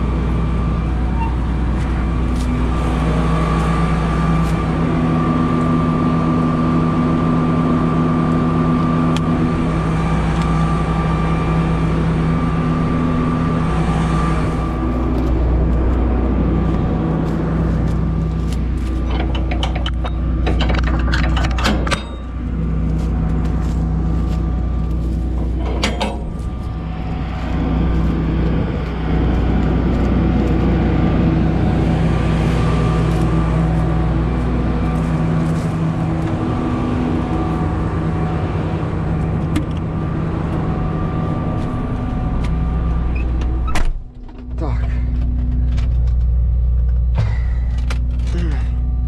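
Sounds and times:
diesel engine running: 0.0s - 49.0s
sharp clicks and knocks: 18.5s - 22.4s, 25.4s - 26.4s.

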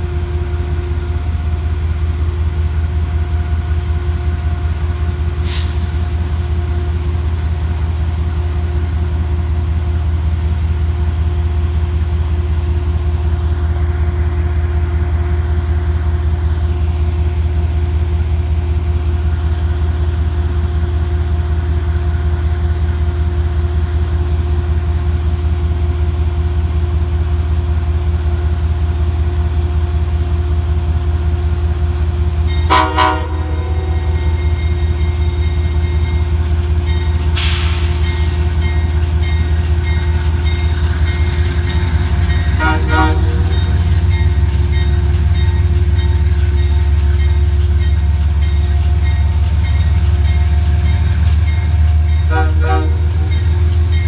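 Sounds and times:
diesel locomotive engine droning: 0.0s - 54.0s
train horn toot: 32.6s - 34.4s, 42.4s - 43.9s, 52.2s - 53.4s.

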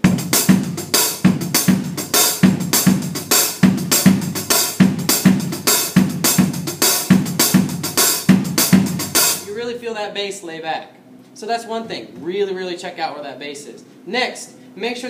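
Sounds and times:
low bass drum hits: 0.0s - 9.5s
drum kit groove: 0.0s - 9.6s.

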